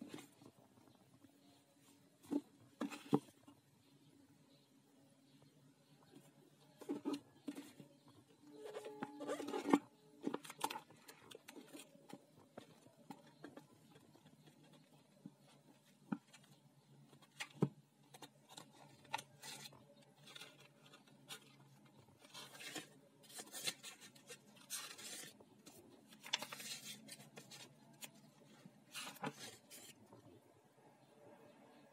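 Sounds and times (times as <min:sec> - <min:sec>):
book pages turning: 0:08.6 - 0:30.2.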